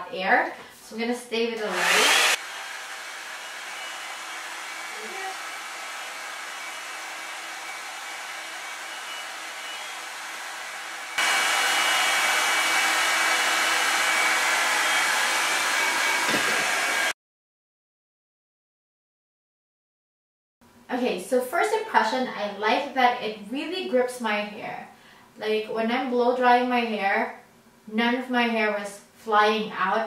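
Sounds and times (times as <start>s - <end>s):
hot-air brush blowing: 1.6s - 17.2s.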